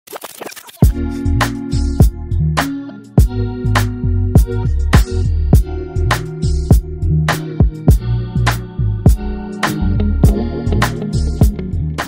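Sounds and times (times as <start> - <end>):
scratchy sounds: 0.0 - 1.0
electronic beat with kick drums: 0.8 - 12.0.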